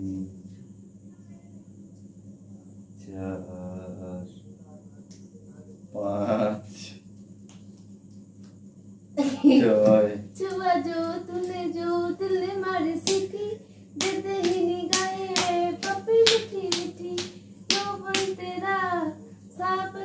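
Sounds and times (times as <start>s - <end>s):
sharp claps: 7.1s - 8.6s, 13.0s - 13.3s, 14.0s - 18.4s.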